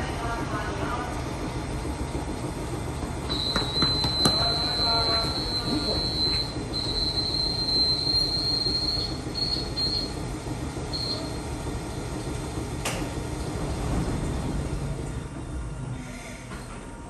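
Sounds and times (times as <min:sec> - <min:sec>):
train running rumble: 0:00.0 - 0:17.0
train wheel squeal: 0:03.3 - 0:10.2, 0:15.9 - 0:16.8.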